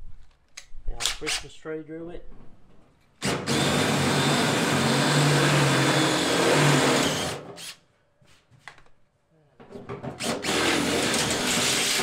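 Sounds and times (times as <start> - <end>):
cordless drill drilling sheet steel: 3.2 - 7.8, 10.1 - 12.0.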